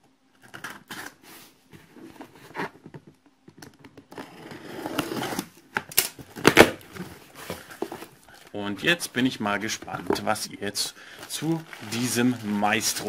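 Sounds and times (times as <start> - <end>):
cardboard rustling: 0.5 - 3.2, 6.2 - 13.0.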